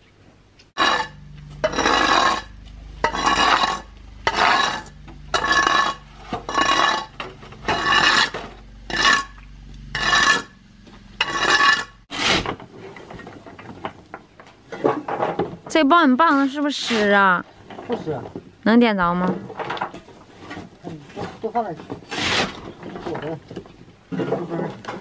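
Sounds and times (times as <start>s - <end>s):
metal scraper on wet concrete: 0.8s - 10.6s, 11.2s - 12.6s, 22.1s - 22.6s.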